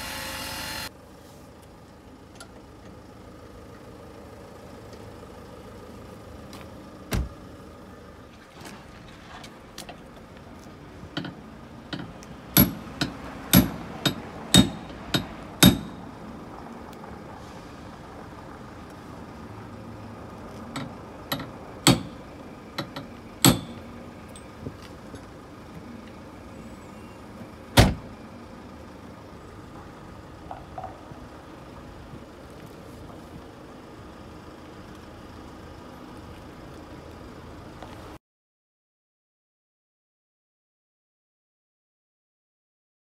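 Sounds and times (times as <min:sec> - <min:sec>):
car boot lid slamming: 0:07.1 - 0:07.4, 0:27.8 - 0:28.0
hammer striking metal: 0:11.9 - 0:16.1, 0:20.8 - 0:22.2, 0:22.8 - 0:23.8.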